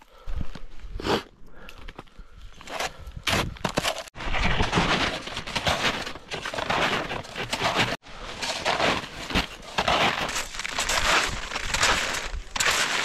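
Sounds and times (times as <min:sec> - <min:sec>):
snowshoes crunching through snow: 0:04.3 - 0:13.0.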